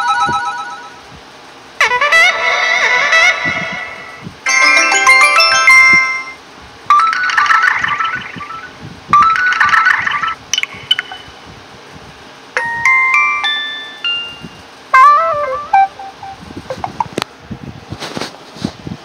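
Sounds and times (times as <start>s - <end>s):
phone notification chimes: 4.5s - 8.6s, 12.6s - 16.4s.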